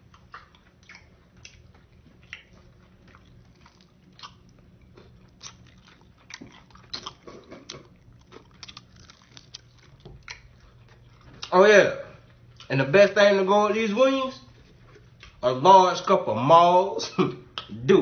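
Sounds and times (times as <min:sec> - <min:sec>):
person chewing chicken wing: 0:00.0 - 0:11.5.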